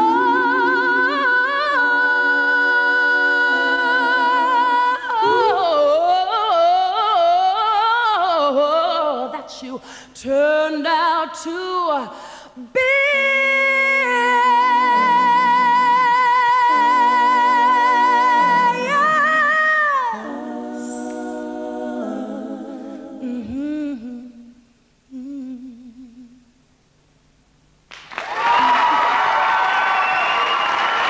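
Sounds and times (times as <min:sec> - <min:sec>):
audience applause: 0:27.9 - 0:31.0.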